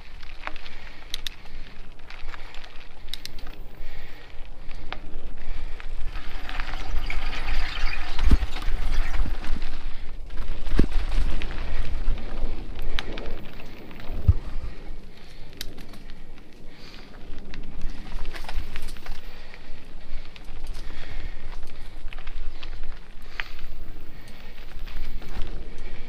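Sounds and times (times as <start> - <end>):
bike tyres crunching over dirt: 0.0 - 26.0
wind rumbling on microphone: 0.0 - 26.0
bike thumping over bumps: 14.1 - 14.8.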